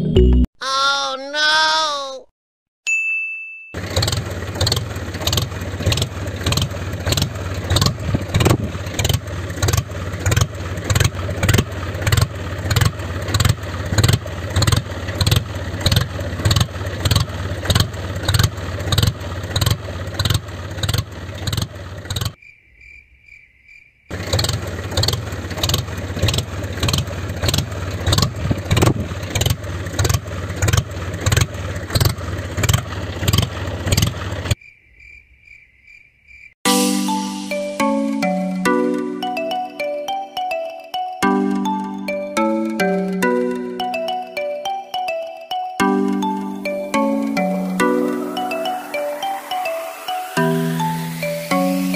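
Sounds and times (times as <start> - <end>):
tractor engine chugging: 3.8 - 22.4, 24.1 - 34.6
crickets chirping: 22.4 - 24.1, 34.6 - 36.6.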